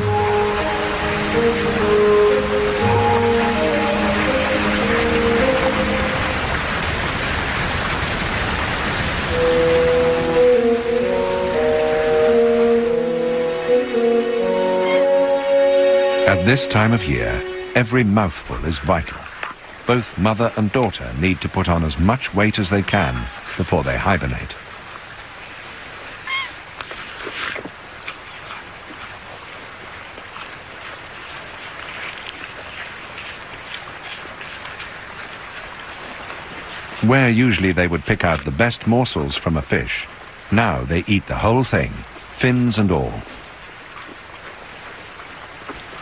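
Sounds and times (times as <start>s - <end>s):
slow music of held chords: 0.0s - 6.5s, 9.3s - 17.8s
river water rushing: 0.0s - 46.0s
small water splashes: 24.6s - 38.7s, 43.1s - 46.0s.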